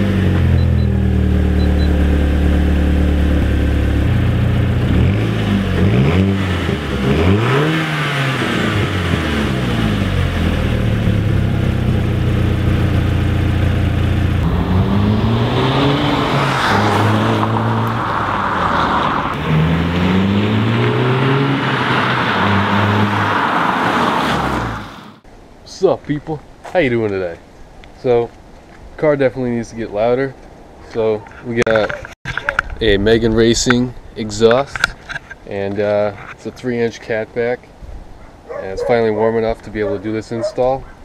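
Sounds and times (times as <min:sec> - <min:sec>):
car engine idling and revving: 0:00.0 - 0:25.2.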